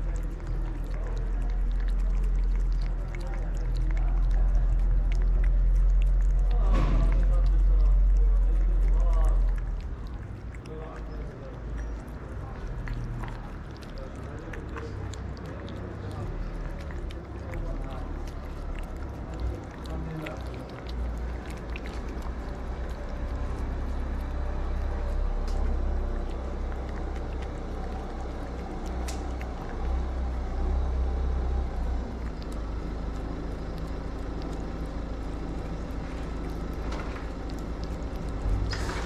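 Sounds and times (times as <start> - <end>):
cats chewing and licking food: 0.0 - 39.0
low uneven rumble: 0.0 - 39.0.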